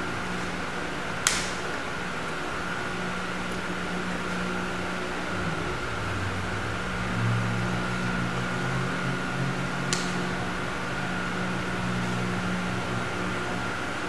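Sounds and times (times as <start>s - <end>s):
electric fan humming: 0.0s - 14.0s
sharp click: 1.2s - 1.6s.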